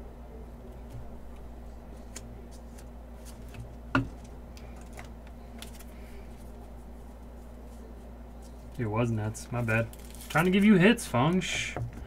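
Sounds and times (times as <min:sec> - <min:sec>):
faint steady hum: 0:00.0 - 0:12.0
cards rustling: 0:01.9 - 0:11.4.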